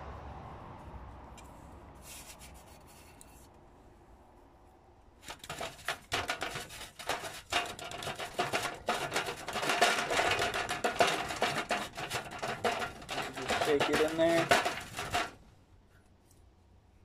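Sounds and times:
plastic cone filler rattling: 0:05.2 - 0:15.4.

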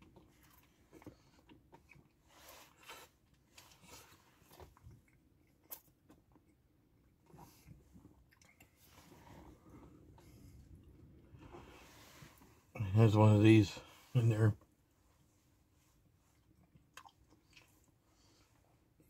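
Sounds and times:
person chewing food: 0:00.0 - 0:11.8, 0:16.0 - 0:19.0
wet mouth clicks: 0:16.9 - 0:17.8.

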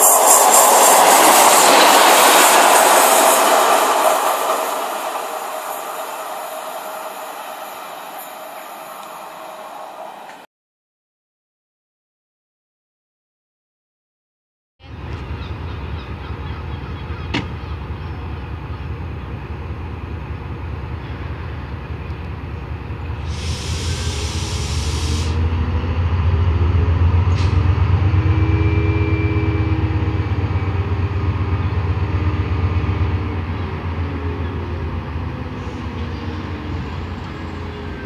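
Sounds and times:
diesel locomotive engine rumble: 0:00.0 - 0:10.5, 0:14.8 - 0:38.0
hiss of air: 0:23.2 - 0:25.4.

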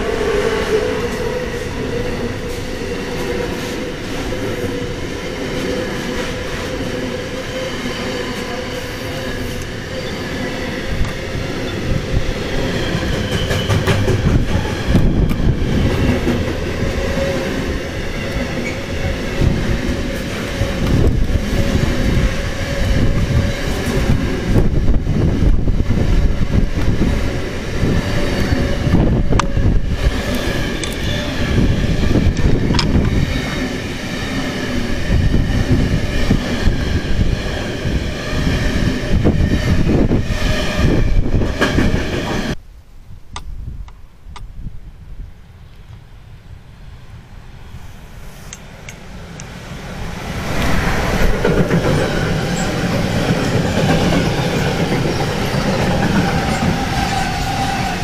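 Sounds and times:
freight train wheels clattering: 0:12.5 - 0:24.7, 0:50.5 - 0:58.0.

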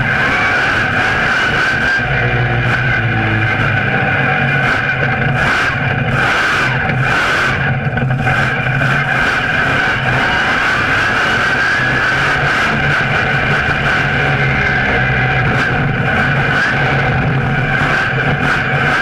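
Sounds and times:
monster truck engine running: 0:00.0 - 0:19.0.

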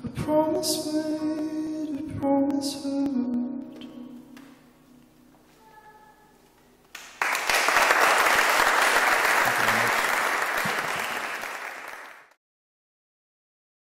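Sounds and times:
audience applauding: 0:06.9 - 0:12.4.

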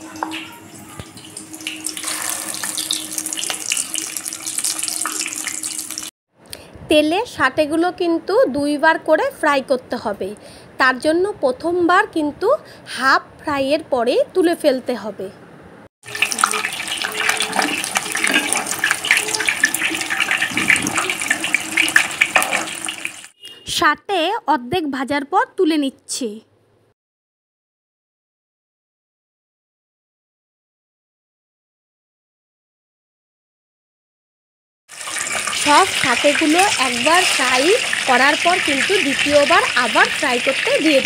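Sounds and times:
food deep-frying in oil: 0:00.0 - 0:06.1, 0:16.0 - 0:23.4, 0:34.9 - 0:41.0.

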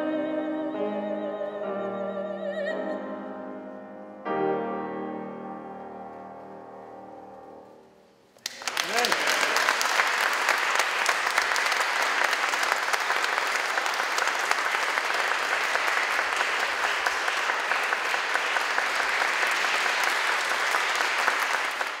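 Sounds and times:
audience applauding: 0:08.4 - 0:22.0.

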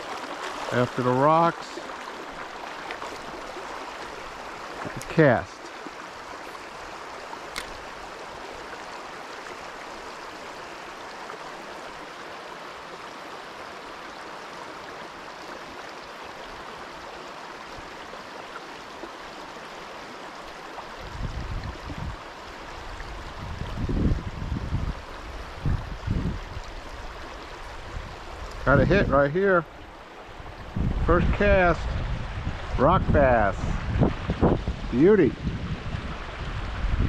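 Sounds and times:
river water rushing over rocks: 0:00.0 - 0:28.6.

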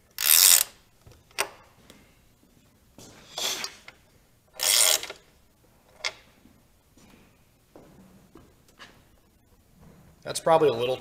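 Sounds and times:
ratchet wrench ratcheting: 0:00.1 - 0:00.8, 0:04.6 - 0:05.2.

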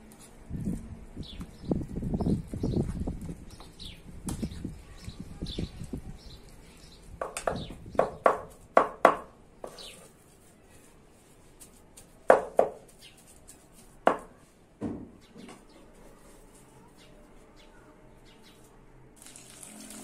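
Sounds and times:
knife chopping on wooden board: 0:12.3 - 0:12.8.

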